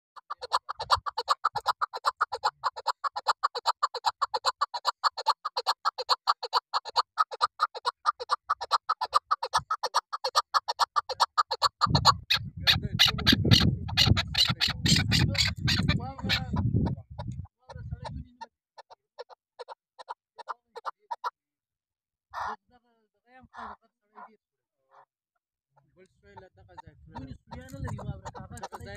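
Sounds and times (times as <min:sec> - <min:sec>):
partridge clucking: 0:00.2 - 0:16.6, 0:27.1 - 0:28.9.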